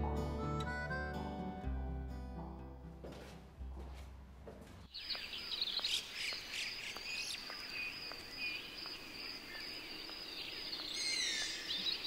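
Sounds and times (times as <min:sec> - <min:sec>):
footsteps on path: 0:03.0 - 0:09.2
birds chirping: 0:04.9 - 0:12.0
insect trill: 0:05.0 - 0:12.0.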